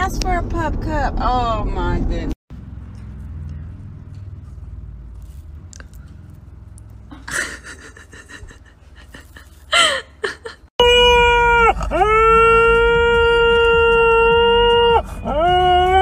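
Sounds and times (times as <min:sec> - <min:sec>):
dog howling: 0:10.8 - 0:16.0.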